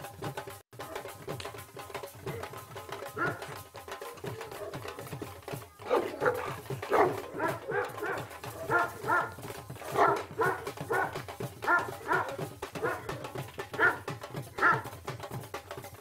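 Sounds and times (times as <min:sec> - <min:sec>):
music with steady beat: 0:00.0 - 0:16.0
large dog barking: 0:03.2 - 0:05.0, 0:05.8 - 0:14.8.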